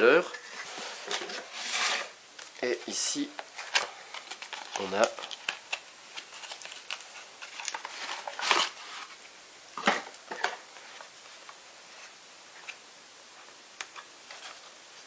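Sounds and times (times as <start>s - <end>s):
cardboard scrapes and rustles: 0.4s - 2.2s.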